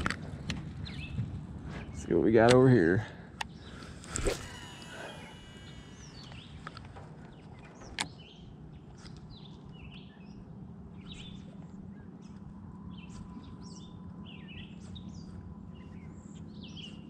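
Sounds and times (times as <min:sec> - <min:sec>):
birds chirping: 0:00.8 - 0:17.0
line running off reel: 0:03.8 - 0:08.1
sharp reel click: 0:04.0 - 0:06.8
fishing rod swish: 0:04.1 - 0:04.6.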